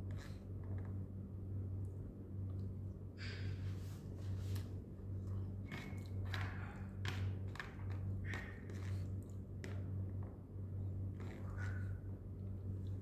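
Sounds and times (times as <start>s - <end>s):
spoon scraping plastic container: 7.6s - 9.1s.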